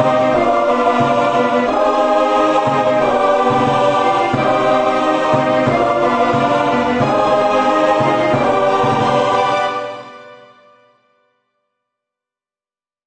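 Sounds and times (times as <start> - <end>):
choir singing sustained chords: 0.0 - 11.0.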